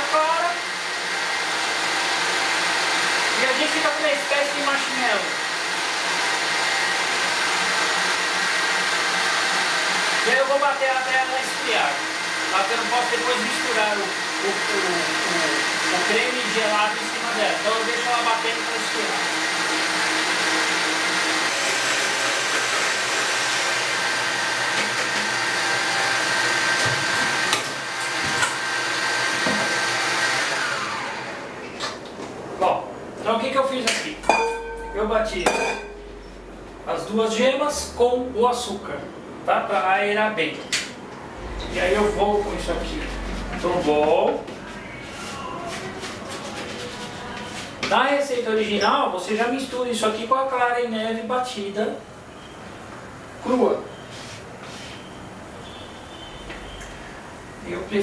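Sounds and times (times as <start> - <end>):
stand mixer whisking: 12.0 - 31.5.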